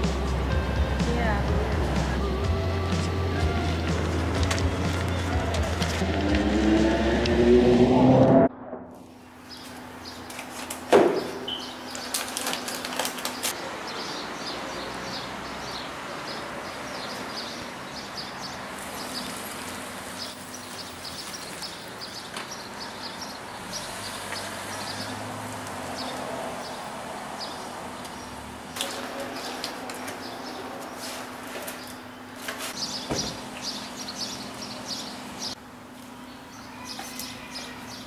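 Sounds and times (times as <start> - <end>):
small birds chirping: 13.3 - 25.2, 30.2 - 38.0.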